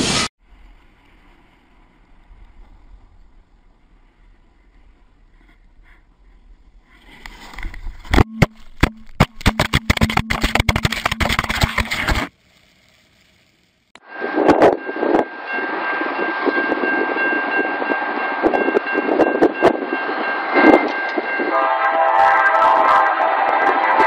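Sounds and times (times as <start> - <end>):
snowboard sliding on snow: 0.0 - 2.0
rapid clattering and scraping: 9.1 - 12.3.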